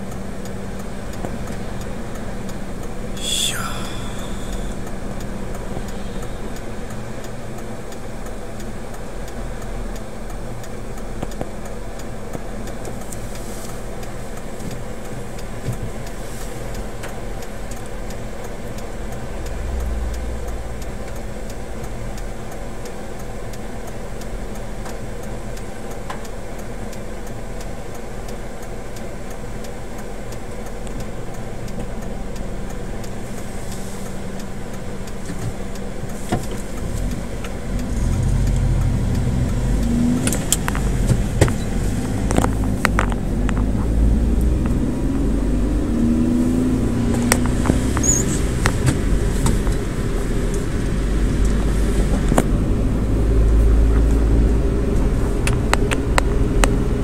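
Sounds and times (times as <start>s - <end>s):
low rumble: 0.0s - 7.3s, 34.6s - 57.0s
car engine and road noise: 0.0s - 57.0s.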